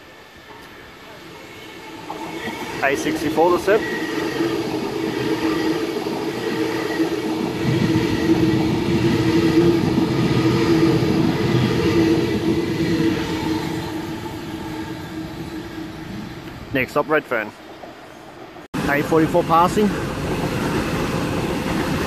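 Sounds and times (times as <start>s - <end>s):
electric train hum: 0.0s - 22.0s
train wheels rumbling on rail: 0.5s - 22.0s.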